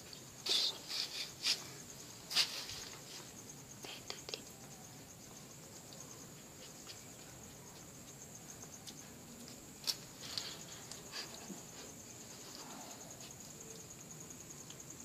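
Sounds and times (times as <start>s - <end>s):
insects chirring: 0.0s - 15.0s.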